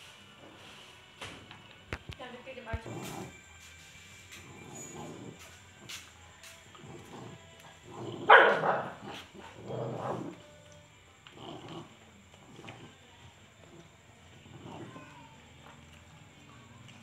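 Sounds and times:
dogs growling and snarling: 2.7 - 3.5, 4.2 - 6.0, 6.6 - 16.2.

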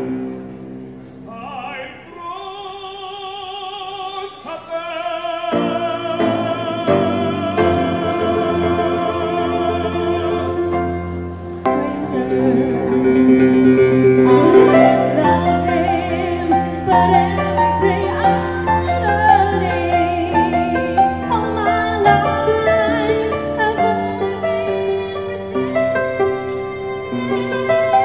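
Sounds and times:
man singing into a microphone: 1.0 - 10.8, 11.7 - 28.0
instrumental accompaniment: 5.6 - 28.0
woman singing with vibrato: 11.6 - 28.0.

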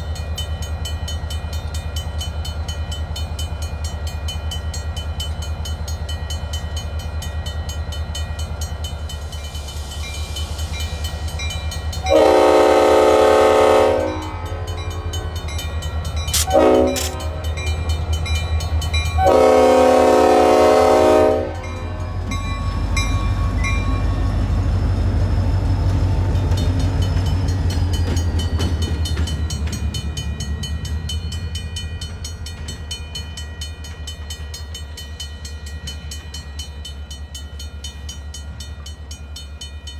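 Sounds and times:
crossing bell ringing: 0.0 - 39.9
locomotive horn blasts: 12.0 - 14.7, 16.4 - 17.5, 19.2 - 21.8.

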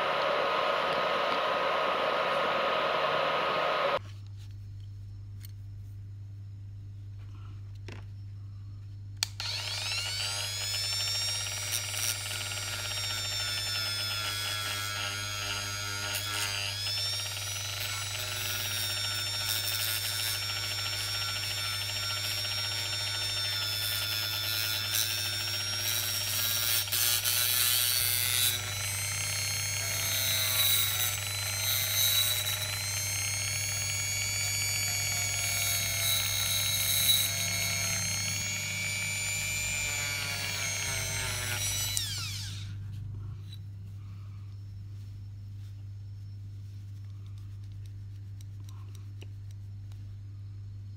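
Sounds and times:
rotary tool whining: 0.0 - 4.0, 9.2 - 45.2.

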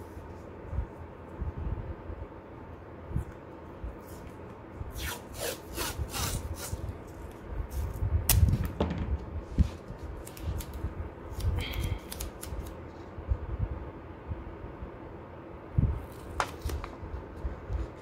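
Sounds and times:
low thumps: 8.5 - 9.6.

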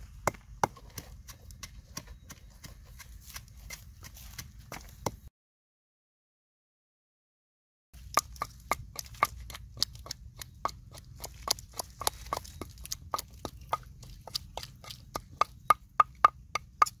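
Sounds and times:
sharp clicks and taps: 8.0 - 17.0.

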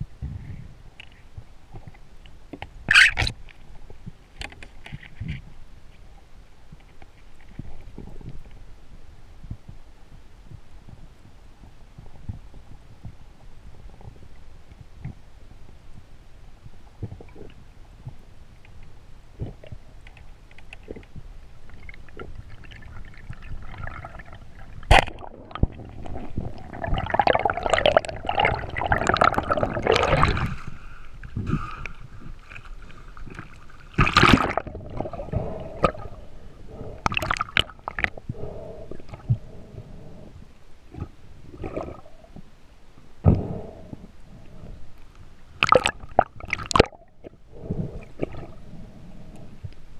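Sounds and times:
water sloshing and gurgling: 17.0 - 42.5, 45.6 - 49.8
water splashing: 32.4 - 36.1, 45.6 - 47.1.

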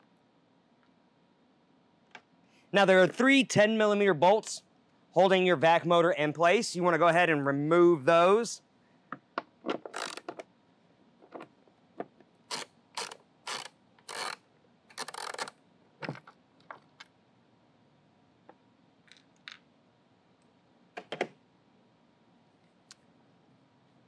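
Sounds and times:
ratchet wrench clicking: 9.9 - 10.3, 12.5 - 15.5.

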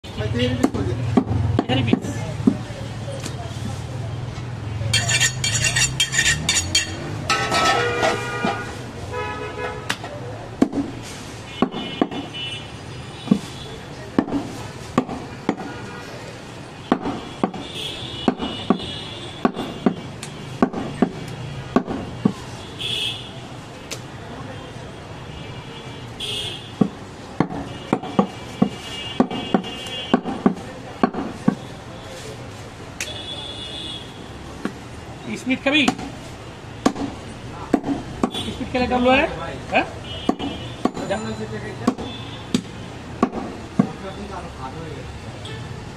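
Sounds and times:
knife chopping meat on wood block: 10.6 - 11.0, 11.6 - 12.3, 14.2 - 15.7, 16.9 - 17.6, 18.2 - 22.4, 26.8 - 31.6, 36.8 - 38.4, 40.3 - 41.0, 41.8 - 44.0.

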